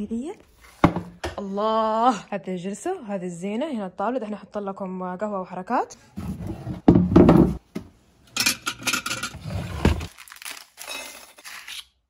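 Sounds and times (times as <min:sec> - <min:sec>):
objects rustling and crinkling: 0:09.1 - 0:11.8.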